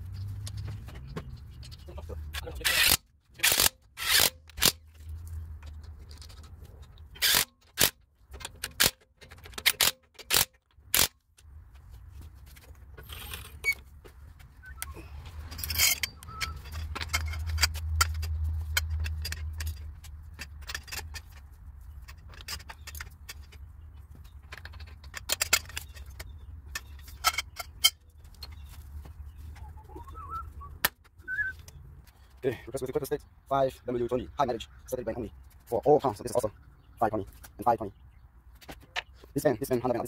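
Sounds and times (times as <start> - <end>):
impact wrench bursts: 2.6 - 4.8, 7.2 - 7.9
metallic clicks and clinks: 14.8 - 28.7.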